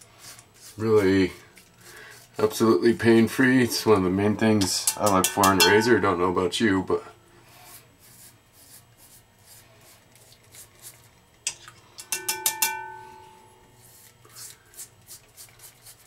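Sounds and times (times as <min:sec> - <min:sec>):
razor scraping stubble: 0:00.0 - 0:05.5, 0:07.6 - 0:11.2, 0:13.8 - 0:16.0
razor knocking against bowl: 0:04.6 - 0:06.1, 0:12.0 - 0:13.4
bowl ringing: 0:04.8 - 0:06.2, 0:12.1 - 0:13.7.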